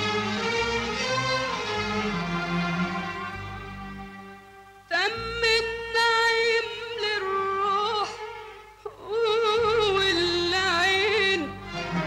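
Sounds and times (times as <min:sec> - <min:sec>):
faint musical accompaniment: 0:00.0 - 0:12.0
woman singing in a high voice: 0:04.9 - 0:11.6.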